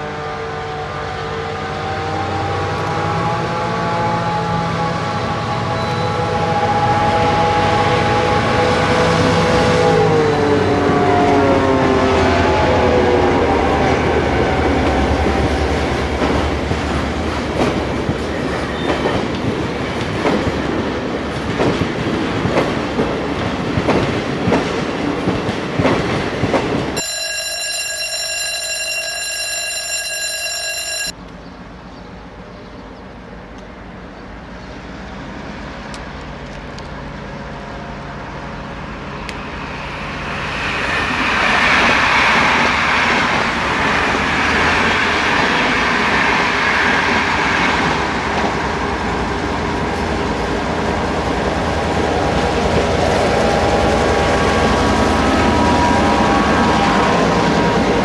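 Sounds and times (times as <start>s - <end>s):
locomotive multi-tone horn: 0.0s - 8.8s
diesel locomotive engine: 0.0s - 58.0s.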